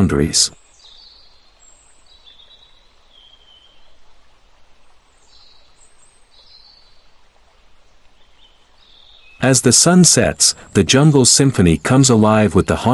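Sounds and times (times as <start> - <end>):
thin bird calls: 0.0 - 4.2
soft steady hiss: 0.0 - 12.9.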